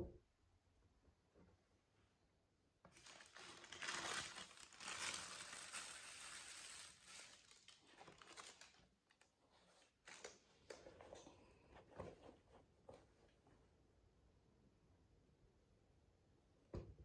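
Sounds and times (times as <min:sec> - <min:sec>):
tissue paper crinkling: 0:02.9 - 0:10.4.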